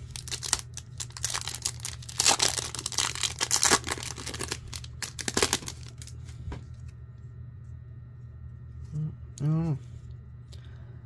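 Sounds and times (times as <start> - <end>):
wrapper torn and crinkled: 0.0 - 6.2.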